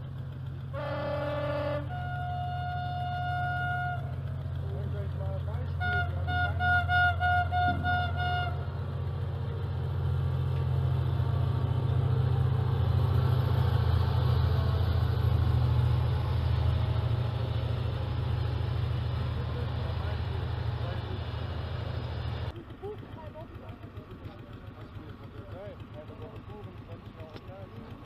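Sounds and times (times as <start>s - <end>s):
passenger train rumbling past: 0.0s - 28.0s
horn short toots: 0.7s - 4.3s, 5.7s - 8.7s.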